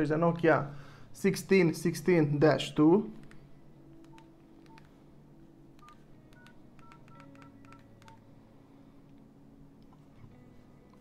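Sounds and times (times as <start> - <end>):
phone keypad beeps: 5.8 - 8.2.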